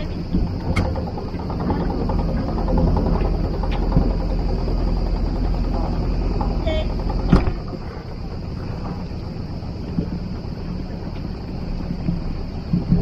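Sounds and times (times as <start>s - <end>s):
outboard motor running: 0.0s - 13.0s
sharp clunk: 6.4s - 7.9s.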